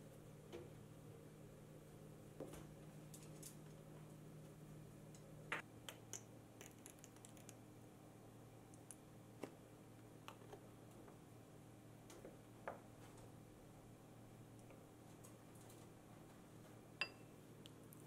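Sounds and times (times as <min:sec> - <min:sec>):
utensils and glassware tapping: 0:17.0 - 0:17.3.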